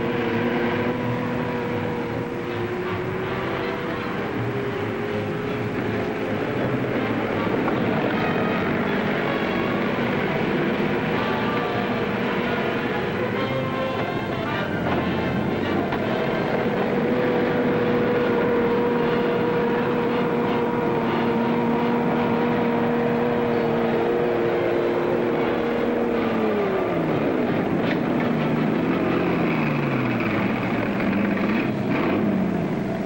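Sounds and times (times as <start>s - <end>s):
film soundtrack hiss: 0.0s - 33.0s
vehicle engine winding down: 0.0s - 33.0s.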